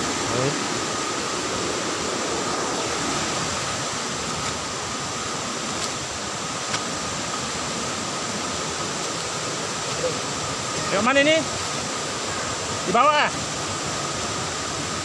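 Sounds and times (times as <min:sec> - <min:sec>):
river water over rocks: 0:00.0 - 0:15.0.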